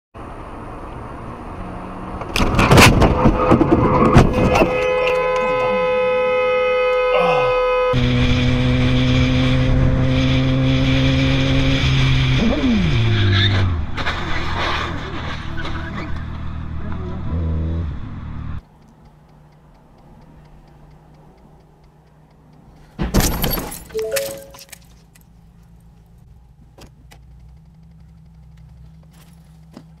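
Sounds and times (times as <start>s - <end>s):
motorcycle road and wind noise: 8.0s - 18.6s
faint clicks: 18.6s - 22.9s, 24.8s - 29.1s
two-note tone: 24.0s - 24.8s.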